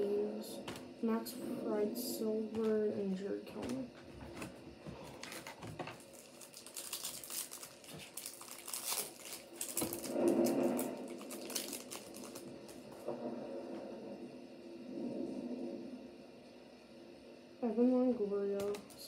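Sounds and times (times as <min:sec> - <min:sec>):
low hum: 0:00.0 - 0:19.0
foil wrapper crinkling: 0:05.2 - 0:12.8.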